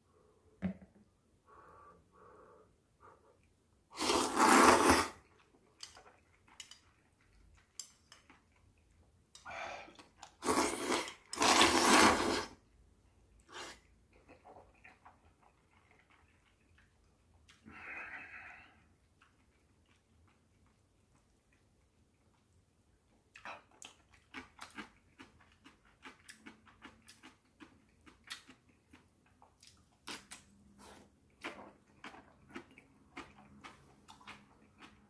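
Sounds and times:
person slurping noodles: 0:03.9 - 0:05.3, 0:10.2 - 0:12.6, 0:13.5 - 0:13.9.

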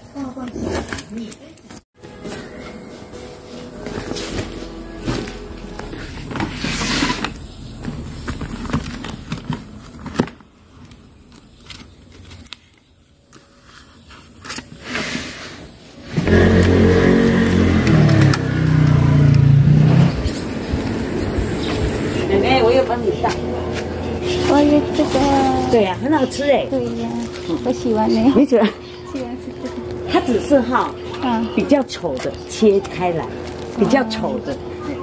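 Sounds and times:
vehicle engine running loudly: 0:03.8 - 0:10.0, 0:16.1 - 0:27.6.

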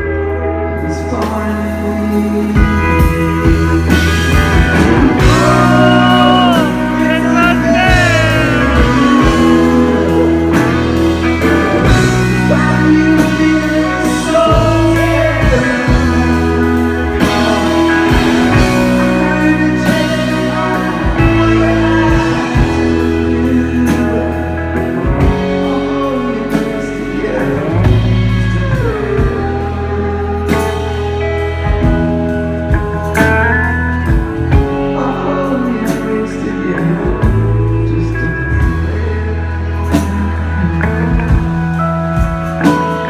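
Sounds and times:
live rock band: 0:00.0 - 0:43.0
man singing: 0:00.0 - 0:43.0.

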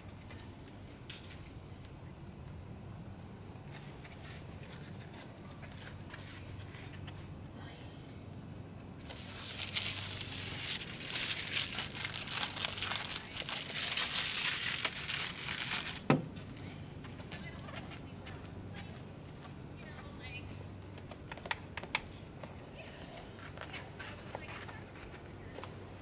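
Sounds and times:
plastic crackling and crinkling: 0:09.0 - 0:16.1.

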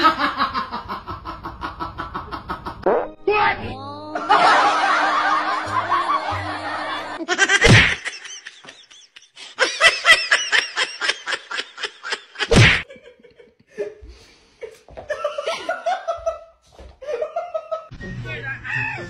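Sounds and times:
person laughing hard: 0:04.1 - 0:14.1, 0:15.1 - 0:17.9
loud thump: 0:07.6 - 0:08.0.

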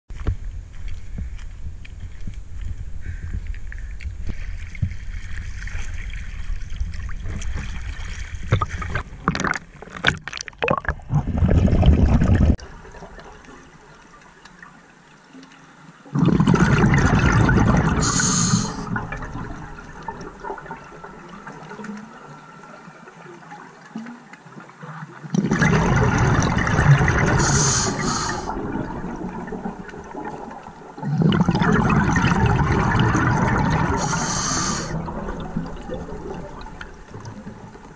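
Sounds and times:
water sloshing and splashing: 0:00.2 - 0:37.9
diver's exhaled bubbles rushing: 0:04.8 - 0:13.4, 0:16.1 - 0:21.8, 0:25.3 - 0:37.9
quiet inhalations through regulator: 0:17.9 - 0:19.3, 0:27.2 - 0:28.7, 0:33.6 - 0:35.2.

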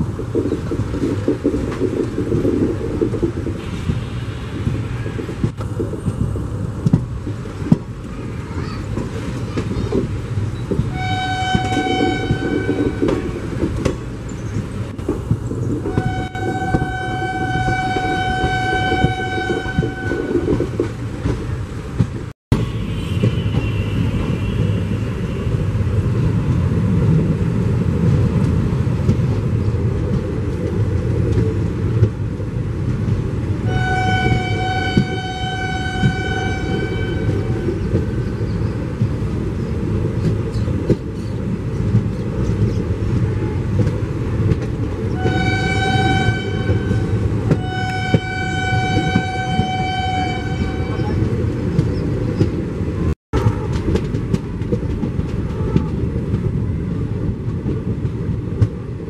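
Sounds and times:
train wheels rumbling on rail: 0:00.0 - 0:59.0
locomotive horn blasts: 0:10.9 - 0:13.5, 0:15.9 - 0:20.7, 0:33.6 - 0:37.7, 0:45.1 - 0:51.4.

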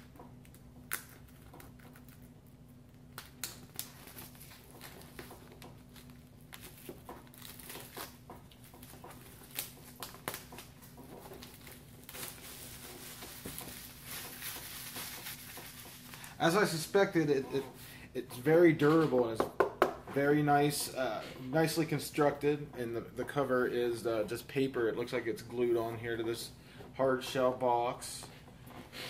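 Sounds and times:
shrink wrap crackling: 0:00.4 - 0:17.1.

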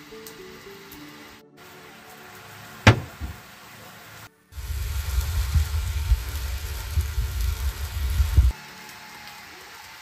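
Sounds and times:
meat sizzling over charcoal: 0:00.0 - 0:10.0
air buffeting microphone: 0:02.9 - 0:03.4, 0:04.6 - 0:08.5.

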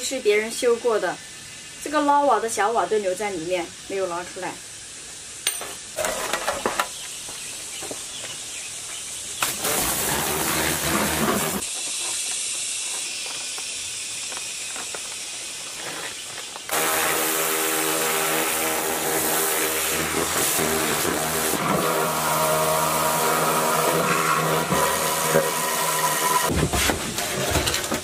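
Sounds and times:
water jet hissing: 0:00.1 - 0:26.8
pressure washer pump motor: 0:09.4 - 0:11.7, 0:16.7 - 0:26.5.

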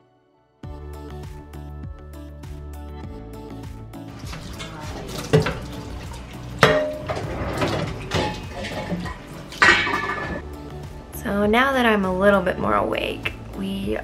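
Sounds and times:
tap water running: 0:04.1 - 0:10.4
plates and cutlery clattering: 0:04.2 - 0:05.9, 0:06.6 - 0:10.4.

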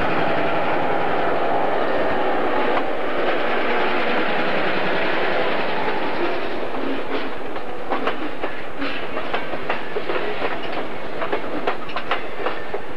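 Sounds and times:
train wheels rumbling on rail: 0:00.0 - 0:12.9
sharp clicks and clanks: 0:07.1 - 0:12.6.

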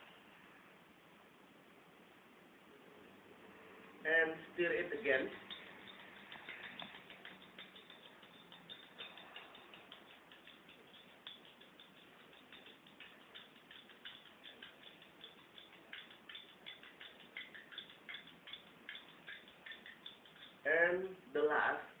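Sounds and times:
teaspoon clinking against glass: 0:05.1 - 0:20.7.

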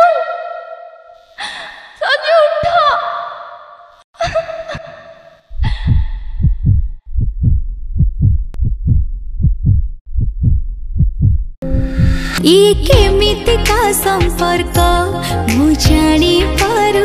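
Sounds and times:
heartbeat thumps: 0:05.5 - 0:13.2
music: 0:11.6 - 0:17.0.

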